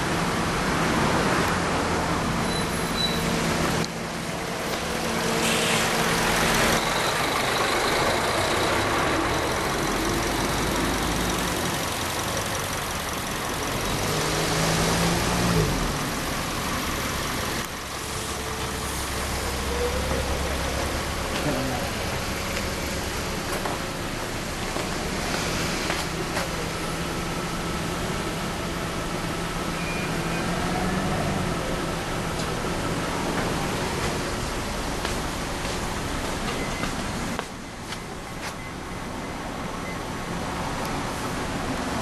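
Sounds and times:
car engine idling: 0:03.3 - 0:14.4, 0:15.6 - 0:29.8.

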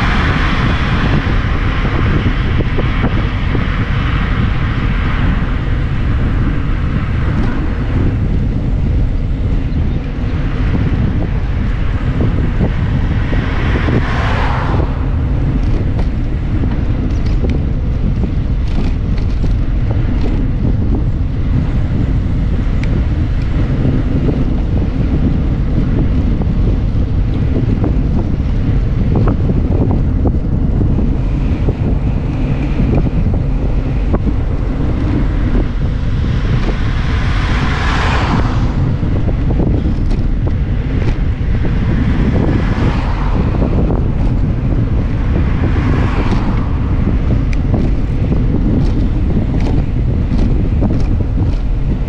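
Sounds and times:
vehicle rushing past: 0:00.0 - 0:08.2, 0:10.4 - 0:19.1, 0:30.9 - 0:51.5
car passing: 0:00.0 - 0:52.0
wind buffeting microphone: 0:00.0 - 0:52.0.

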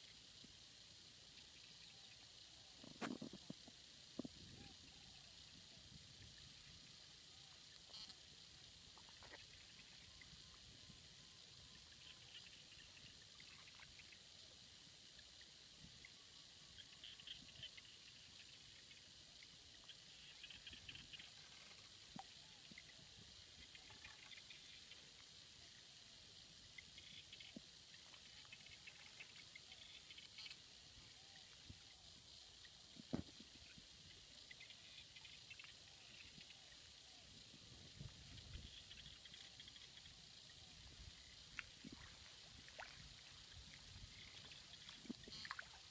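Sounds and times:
faint steady hiss: 0:00.0 - 0:45.9
soft crackles: 0:01.4 - 0:14.5, 0:26.6 - 0:45.9.

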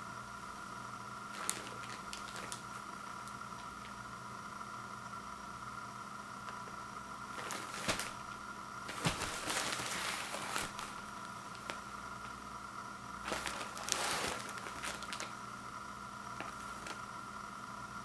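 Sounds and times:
faint steady hum: 0:00.0 - 0:18.0
plastic wrap crinkling: 0:01.3 - 0:03.9, 0:07.3 - 0:12.4, 0:13.2 - 0:15.4, 0:16.3 - 0:17.1.

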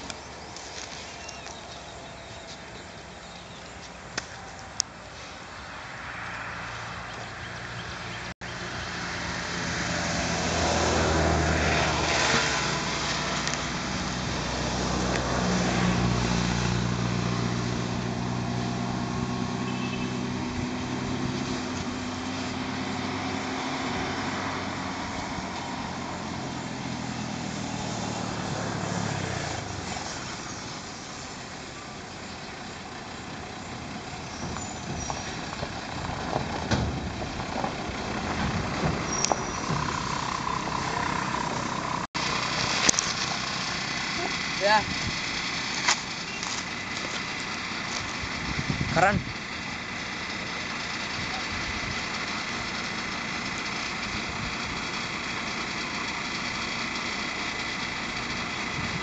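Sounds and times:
engine droning: 0:00.0 - 0:59.0.

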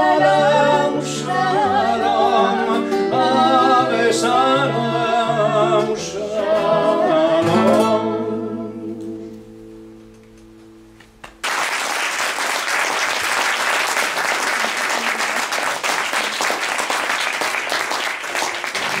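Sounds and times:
acoustic guitar chord ringing: 0:05.9 - 0:11.0
audience applause: 0:11.2 - 0:19.0.

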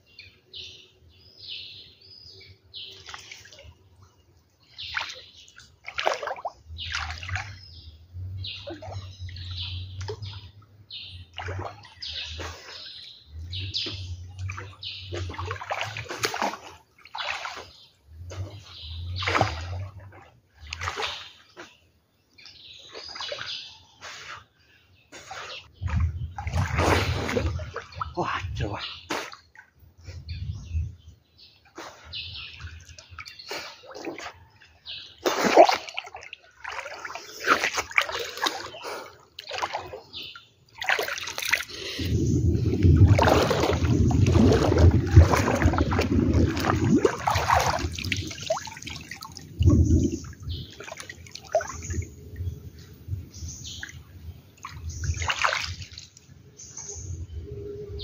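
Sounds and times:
floodwater splashing and sloshing: 0:01.4 - 0:30.3, 0:31.5 - 0:57.4.

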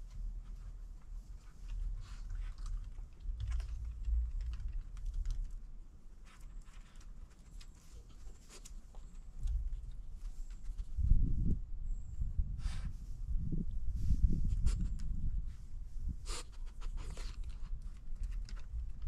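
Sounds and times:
dog claws clicking on wood: 0:02.0 - 0:05.6, 0:17.0 - 0:19.0.

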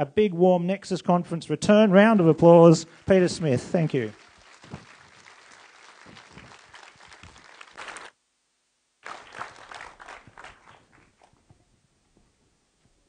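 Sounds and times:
audience applauding: 0:02.4 - 0:08.2, 0:09.0 - 0:11.4.

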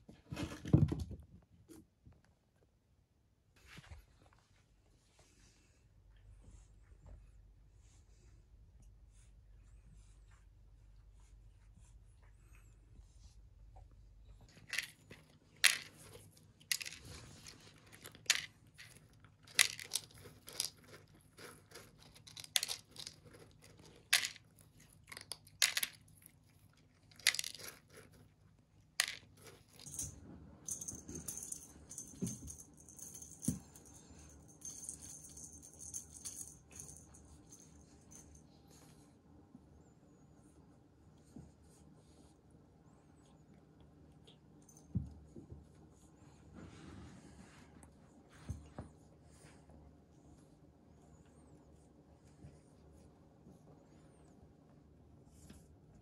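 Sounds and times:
kibble rattling in plastic container: 0:14.5 - 0:26.1, 0:27.1 - 0:28.2, 0:29.0 - 0:30.1
kitten crunching kibble: 0:14.5 - 0:30.1.

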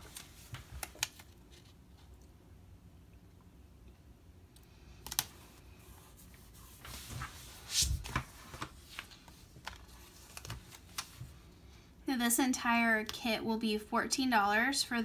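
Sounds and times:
paper rustling: 0:06.2 - 0:11.3.

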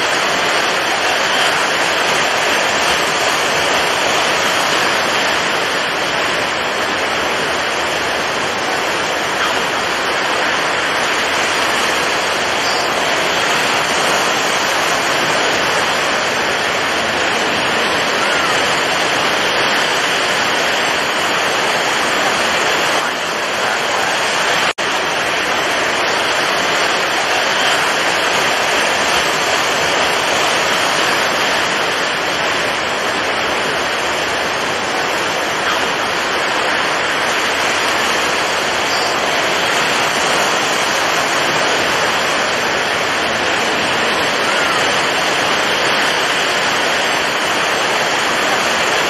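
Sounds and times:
stormy waves and surf rushing: 0:00.0 - 0:49.0.

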